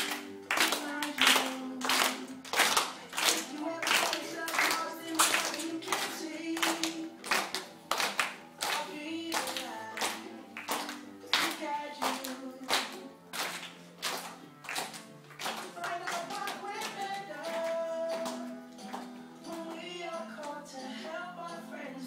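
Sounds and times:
girls singing: 0.0 - 7.5, 8.6 - 13.2, 15.7 - 18.6, 19.4 - 22.0
children clapping in a beat: 0.0 - 20.9.

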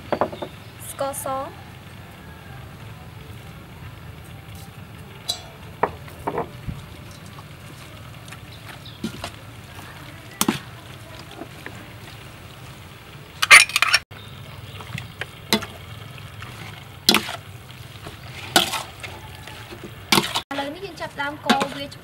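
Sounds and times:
wet squishing of meat: 15.7 - 20.4.

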